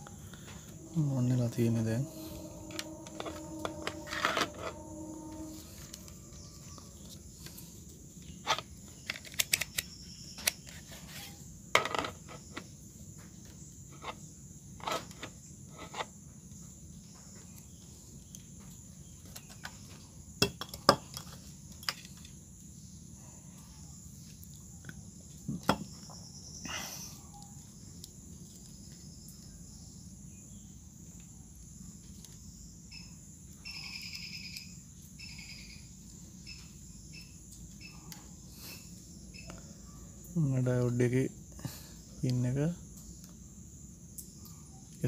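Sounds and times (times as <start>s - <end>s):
steady tone: 0.0s - 7.4s.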